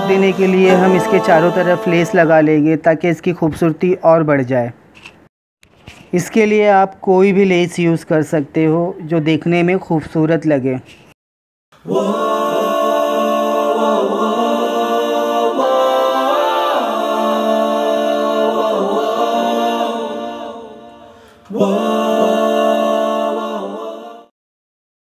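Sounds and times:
choir-like vocal music: 0.0s - 2.8s, 11.8s - 24.4s.

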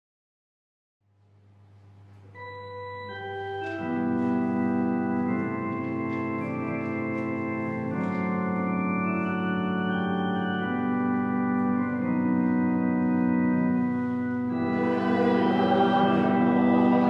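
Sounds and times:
slow organ chords: 1.8s - 17.0s
low held drone: 13.7s - 17.0s.

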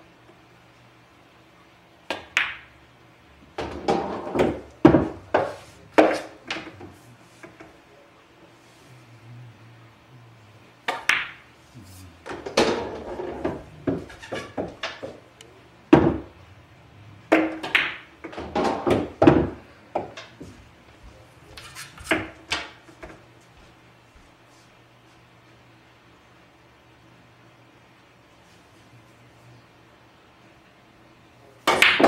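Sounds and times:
cue striking ball: 2.1s - 2.7s, 3.6s - 7.7s, 10.8s - 11.4s, 12.2s - 15.2s, 15.9s - 16.4s, 17.3s - 20.3s, 22.1s - 22.8s, 31.7s - 32.0s
pool balls clacking: 2.1s - 2.7s, 3.5s - 7.8s, 10.8s - 11.5s, 12.2s - 16.5s, 17.1s - 23.2s, 31.6s - 32.0s
balls rolling into pockets: 12.2s - 16.4s.

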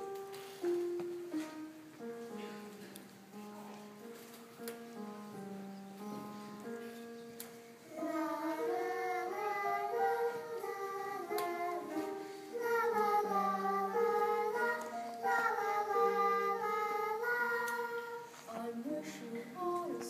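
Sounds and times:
instrumental accompaniment: 0.0s - 19.0s
children singing: 7.9s - 20.0s.

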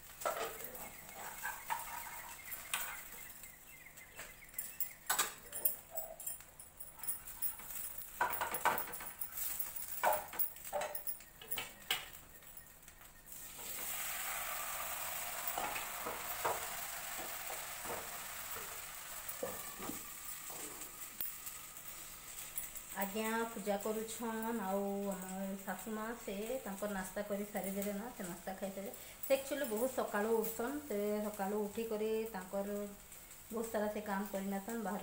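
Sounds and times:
sizzling hiss: 0.0s - 5.4s, 13.2s - 35.0s.

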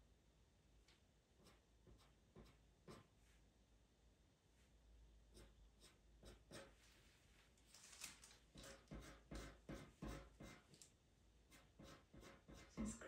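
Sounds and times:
pencil scratching on paper: 1.4s - 3.1s, 5.3s - 7.0s, 8.5s - 10.8s, 11.5s - 13.0s.

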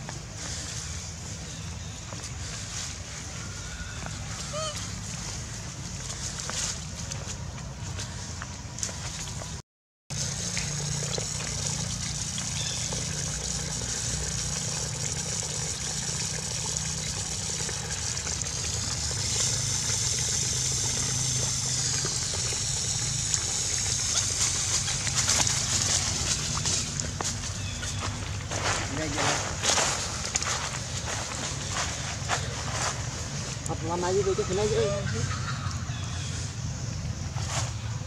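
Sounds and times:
water splashing on ground: 10.1s - 31.4s
water running from a tap: 10.2s - 27.1s.

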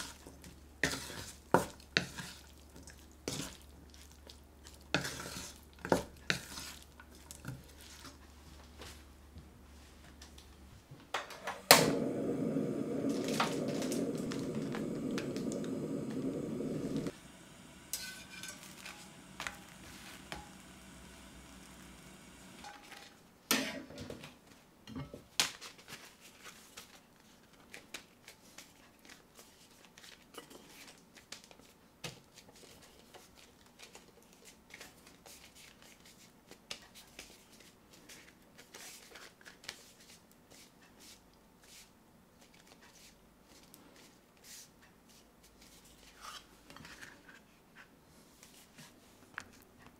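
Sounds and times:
low rushing noise: 11.7s - 22.6s.

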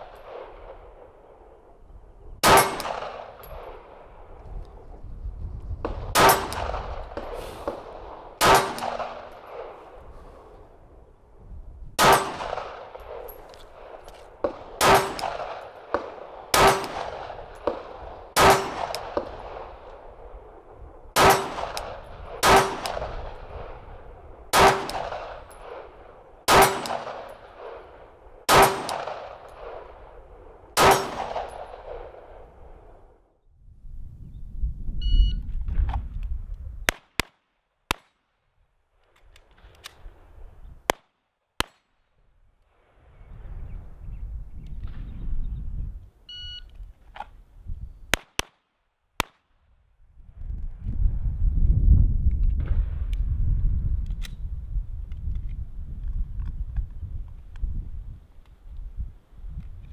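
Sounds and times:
pistol shots: 2.4s - 4.1s, 5.8s - 9.8s, 12.0s - 20.0s, 21.2s - 32.5s, 36.8s - 38.2s, 48.1s - 49.6s.

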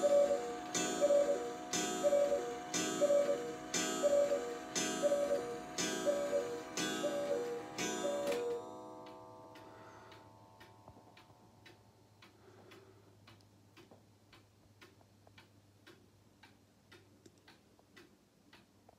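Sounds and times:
cuckoo call: 0.0s - 8.6s
cuckoo clock ticking: 0.0s - 18.8s.

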